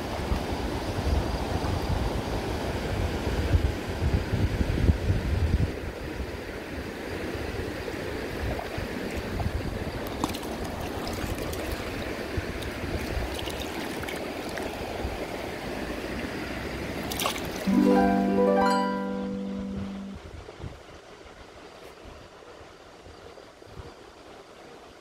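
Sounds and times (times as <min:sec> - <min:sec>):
small splashes: 0:09.9 - 0:15.0, 0:17.0 - 0:17.7
river water rushing over rocks: 0:10.0 - 0:17.7.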